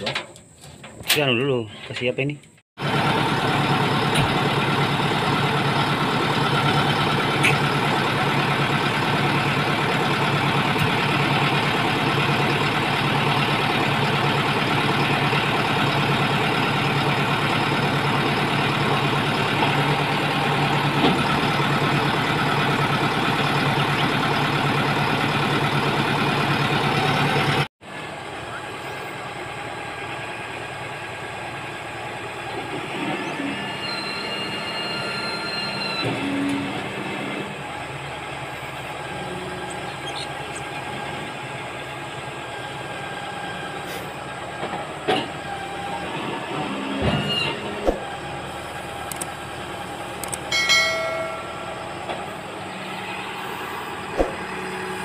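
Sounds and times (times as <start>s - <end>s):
diesel engine running: 0.0s - 55.0s
high squeals: 33.2s - 36.8s.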